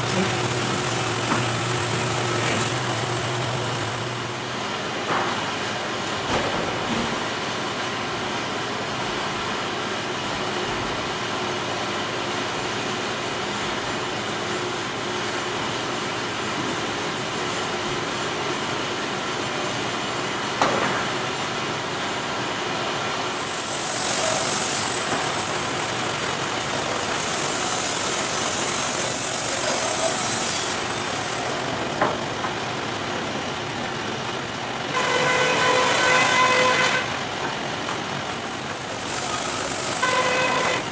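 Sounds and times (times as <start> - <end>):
sawmill running: 0.0 - 40.9
high hissing: 23.3 - 31.6.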